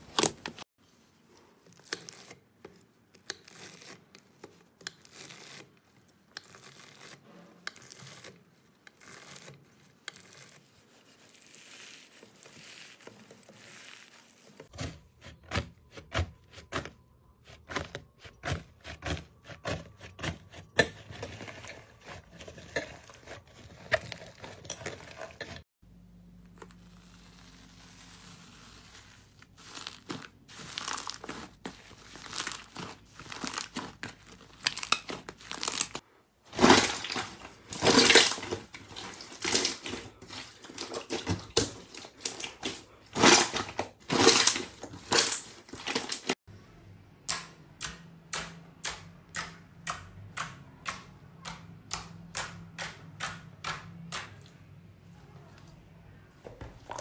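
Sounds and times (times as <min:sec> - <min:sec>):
hands squeezing slime: 0:26.8 - 0:36.0.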